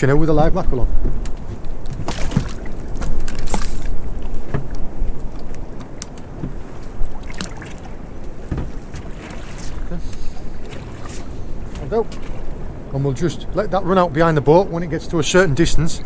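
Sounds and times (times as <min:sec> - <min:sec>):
water slapping boat hull: 0:00.0 - 0:15.9
low wind rumble: 0:00.0 - 0:16.0
light knocks and clicks: 0:08.4 - 0:09.1.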